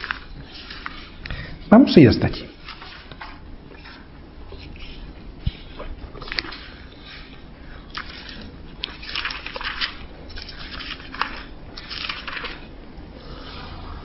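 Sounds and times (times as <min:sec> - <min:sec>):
thin book pages rustling: 0:00.0 - 0:01.2, 0:08.0 - 0:12.6.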